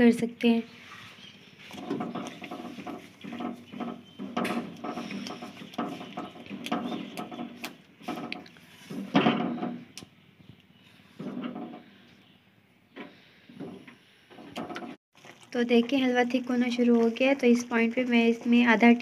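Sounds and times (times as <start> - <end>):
spatula scraping and squelching: 0.7 - 9.2.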